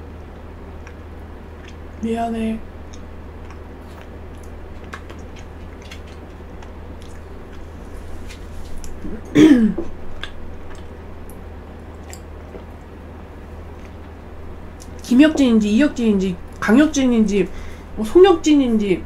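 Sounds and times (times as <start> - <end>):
chewing cheesecake: 0.2 - 2.0, 2.8 - 9.3, 10.1 - 15.1
throat clearing sound: 9.0 - 9.9.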